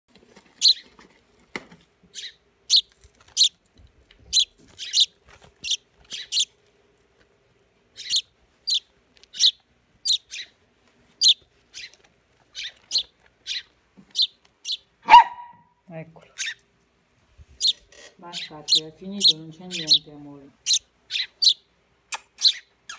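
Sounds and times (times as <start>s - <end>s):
fledgling songbird chirping: 0.6s - 0.9s, 2.1s - 3.6s, 4.3s - 6.6s, 7.9s - 10.6s, 11.2s - 15.6s, 16.3s - 16.6s, 17.6s - 22.9s.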